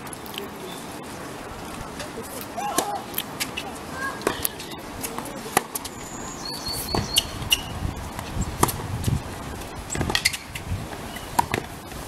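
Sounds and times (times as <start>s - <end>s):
tennis balls struck by rackets: 2.0s - 5.9s, 6.8s - 11.8s
tennis balls bouncing on hard court: 4.2s - 5.9s, 6.9s - 8.9s, 9.9s - 11.8s.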